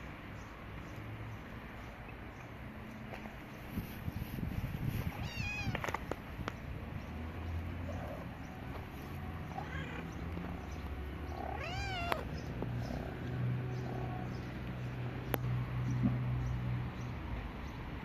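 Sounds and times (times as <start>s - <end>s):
cats meowing: 5.0s - 6.1s, 9.2s - 14.6s.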